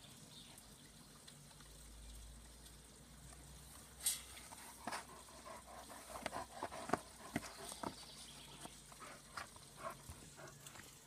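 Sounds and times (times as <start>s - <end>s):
dog claws scraping soil: 4.0s - 11.0s.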